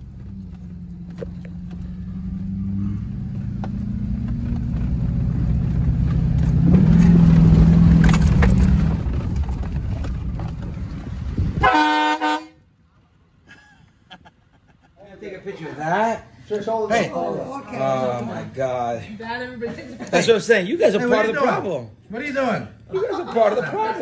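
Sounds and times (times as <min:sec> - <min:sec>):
truck engine: 0:00.0 - 0:12.5
road noise inside cab: 0:00.0 - 0:12.6
truck horn: 0:11.6 - 0:12.6.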